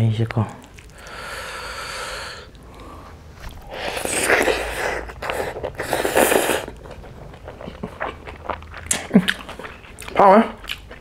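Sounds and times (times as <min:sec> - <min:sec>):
wet slurps of snail meat: 0:02.6 - 0:09.8.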